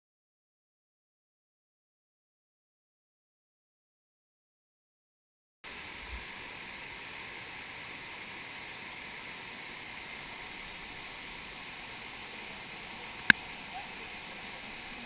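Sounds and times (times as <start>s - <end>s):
stream flowing over rocks: 5.7s - 15.0s.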